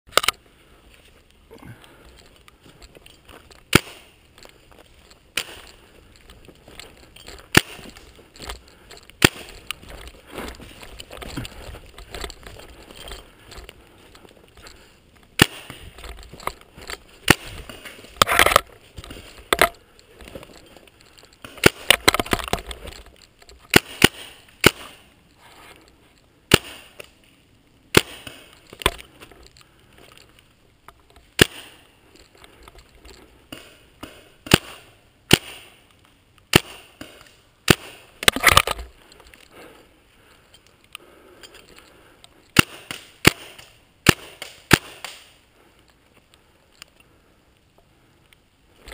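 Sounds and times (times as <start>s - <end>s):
paintball markers firing: 3.7s - 4.2s, 7.4s - 9.8s, 15.4s - 16.1s, 17.2s - 18.7s, 21.4s - 22.6s, 23.7s - 25.1s, 26.5s - 27.2s, 31.4s - 31.8s, 33.5s - 38.7s, 42.5s - 45.4s.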